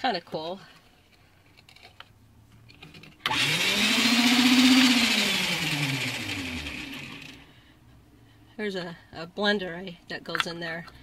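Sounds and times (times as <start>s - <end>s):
blender motor whine: 3.2s - 7.4s.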